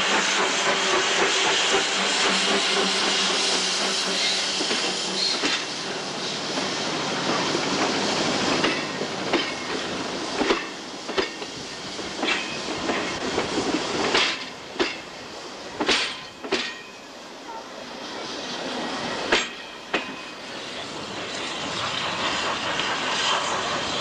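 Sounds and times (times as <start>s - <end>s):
train coaches rolling: 0.0s - 24.0s
wheels clacking over rail joints: 7.3s - 11.6s, 12.2s - 15.1s, 15.8s - 17.0s.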